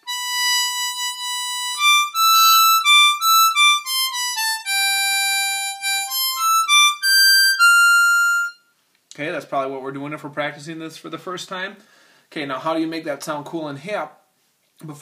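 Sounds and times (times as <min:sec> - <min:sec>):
blues harmonica playing: 0:00.0 - 0:08.8.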